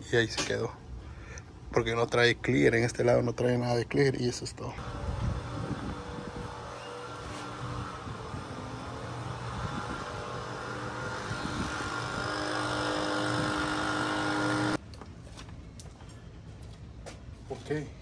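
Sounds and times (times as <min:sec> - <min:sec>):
motor running: 0:04.8 - 0:14.8.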